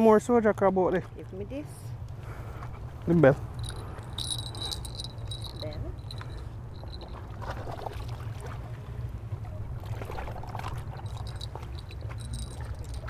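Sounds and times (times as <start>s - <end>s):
wind: 0.0s - 13.0s
fishing rod bell jingling: 3.5s - 7.4s, 10.9s - 13.0s.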